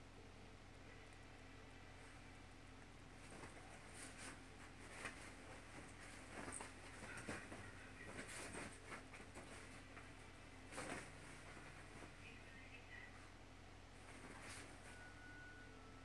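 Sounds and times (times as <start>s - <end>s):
dog scratching on bedding: 3.2s - 12.1s, 14.0s - 15.0s.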